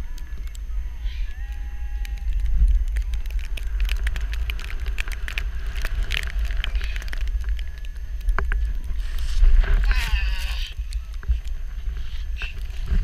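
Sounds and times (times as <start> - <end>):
snow crackling against board: 1.4 - 13.0
snowboard carving through snow: 8.7 - 10.6.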